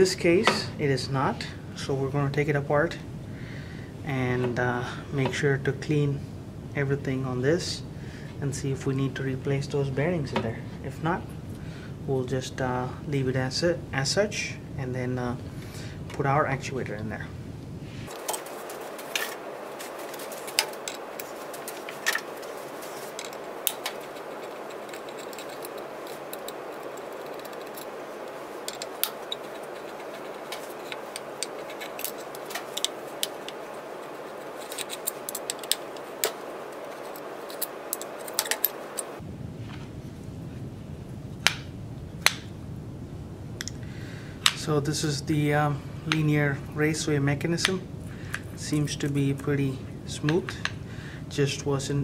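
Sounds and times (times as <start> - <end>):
steady hiss: 0.0 - 52.0
hex key and steel parts clicking: 23.1 - 39.2.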